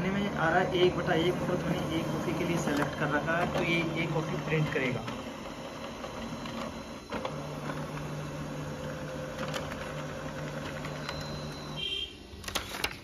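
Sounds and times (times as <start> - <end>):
laser printer humming: 0.0 - 13.0
faint printer clicks: 1.2 - 8.1, 9.3 - 11.6, 12.4 - 13.0.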